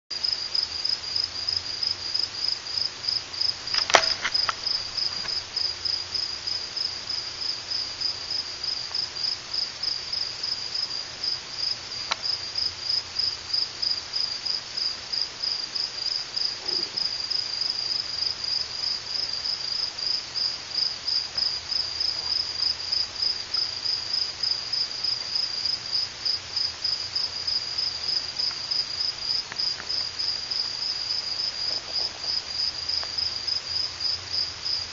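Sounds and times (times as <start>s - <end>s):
crickets chirping: 0.1s - 34.9s
sharp click: 3.7s - 4.6s.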